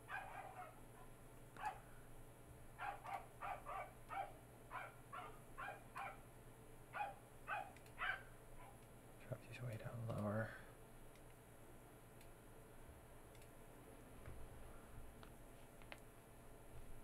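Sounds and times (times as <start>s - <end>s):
dog barking: 0.1s - 1.8s, 2.8s - 6.2s, 6.9s - 8.8s.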